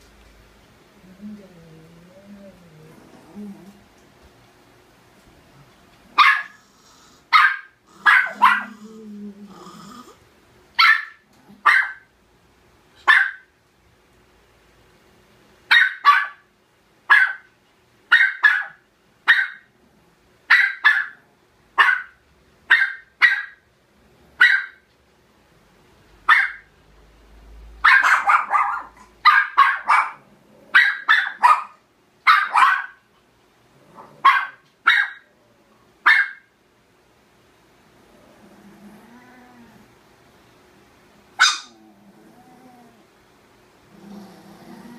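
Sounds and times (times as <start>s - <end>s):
dog growling low: 1.0s - 3.9s, 7.9s - 10.2s, 33.7s - 34.2s, 38.0s - 40.0s, 41.7s - 43.1s, 43.8s - 44.9s
small dog barking: 6.1s - 6.6s, 7.3s - 8.8s, 10.8s - 12.1s, 13.0s - 13.5s, 15.7s - 16.5s, 17.1s - 17.5s, 18.1s - 19.7s, 20.5s - 21.2s, 21.8s - 23.6s, 24.4s - 24.8s, 26.3s - 26.7s, 27.8s - 33.0s, 34.0s - 35.3s, 36.0s - 36.5s, 41.4s - 41.8s.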